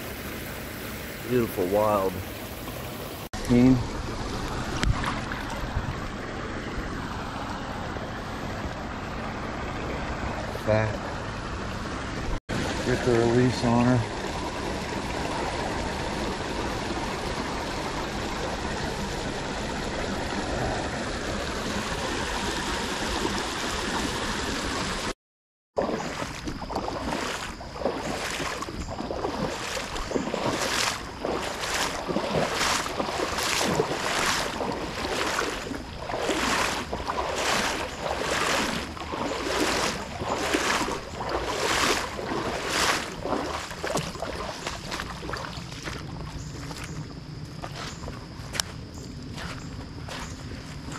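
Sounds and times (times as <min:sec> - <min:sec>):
creek water running over rocks: 0:00.0 - 0:25.2, 0:25.8 - 0:50.9
footsteps splashing through stream: 0:01.4 - 0:07.6, 0:19.3 - 0:25.2, 0:25.8 - 0:50.9.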